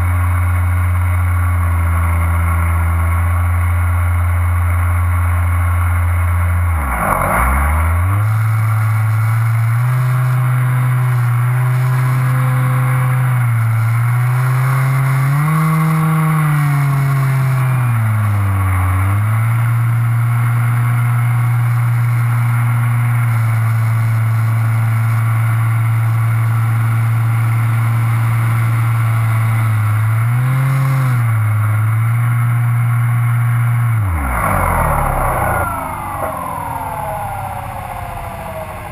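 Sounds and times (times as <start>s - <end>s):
propeller aircraft engine droning: 7.5s - 30.1s, 31.4s - 38.9s.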